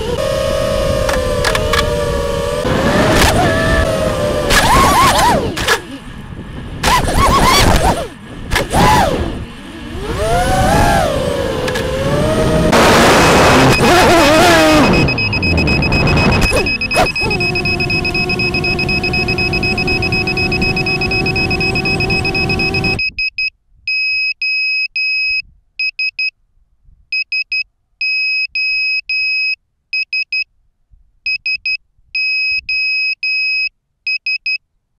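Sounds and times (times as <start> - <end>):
drone motors whirring: 0.0 - 23.0
high electronic beeping: 12.4 - 23.4.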